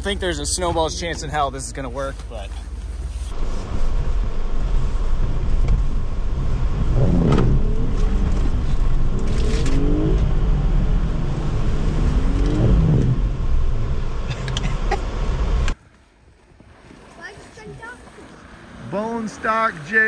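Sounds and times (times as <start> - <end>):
car engine revving hard: 3.3 - 15.8.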